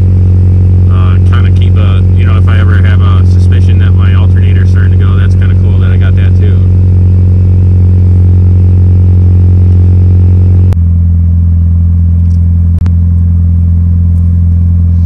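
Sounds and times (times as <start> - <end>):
car engine idling: 0.0 - 15.0
click: 12.2 - 13.0.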